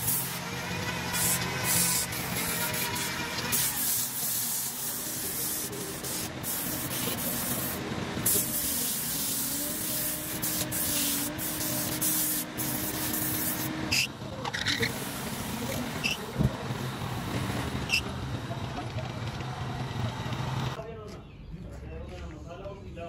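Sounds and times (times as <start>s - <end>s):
sandpaper rasping on spinning wood: 0.0s - 16.4s.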